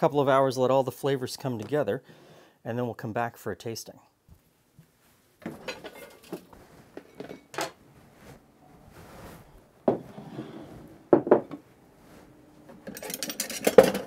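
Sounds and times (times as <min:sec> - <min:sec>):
handling and rustling: 0:04.3 - 0:10.9
bowls knocking on wooden countertop: 0:09.9 - 0:10.1, 0:11.1 - 0:11.6.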